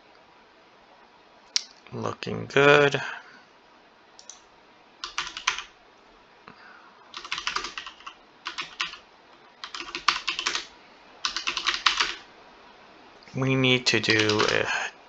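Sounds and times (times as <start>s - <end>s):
keyboard typing: 5.0s - 5.7s, 7.1s - 9.0s, 9.6s - 12.3s, 14.0s - 14.7s.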